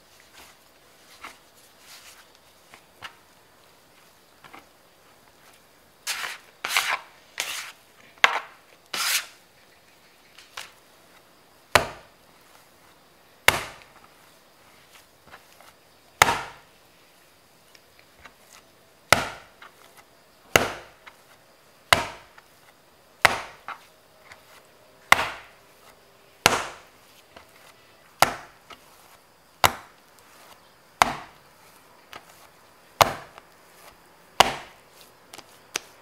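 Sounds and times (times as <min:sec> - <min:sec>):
scraper scraping dough off board: 0:06.0 - 0:07.8, 0:08.9 - 0:09.3
dough slapped onto board: 0:13.5 - 0:13.9, 0:16.2 - 0:16.6, 0:19.1 - 0:19.5, 0:20.5 - 0:20.9, 0:21.9 - 0:22.3, 0:23.2 - 0:23.7, 0:25.1 - 0:25.5, 0:26.4 - 0:26.8, 0:28.2 - 0:28.5, 0:29.6 - 0:29.9, 0:31.0 - 0:31.3, 0:33.0 - 0:33.4, 0:34.4 - 0:35.8.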